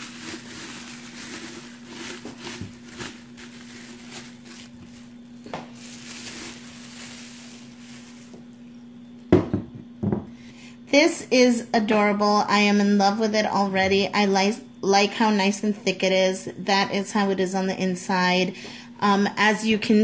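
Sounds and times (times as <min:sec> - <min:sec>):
bubble wrap rustling and crinkling: 0:00.0 - 0:08.8
faint steady hum: 0:00.0 - 0:20.0.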